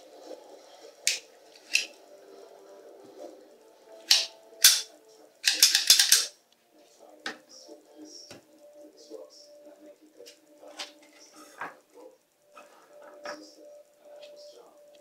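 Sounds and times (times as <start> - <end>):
pistol mechanism clicking: 4.1 - 6.3.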